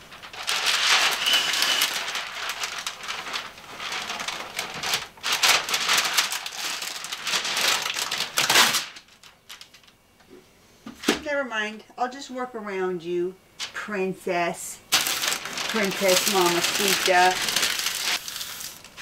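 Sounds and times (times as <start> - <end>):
masking paper crackling: 0.0 - 10.0, 14.9 - 19.0.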